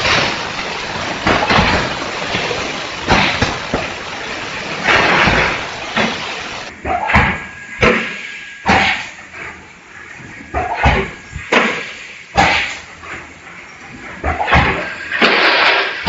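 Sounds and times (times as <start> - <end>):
bursts of air: 0.0 - 7.2.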